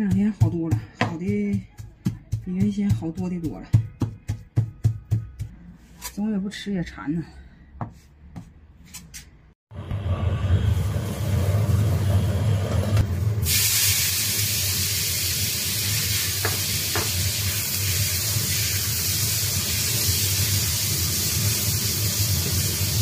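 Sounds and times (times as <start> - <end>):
meat sizzling in oil: 13.4 - 23.0.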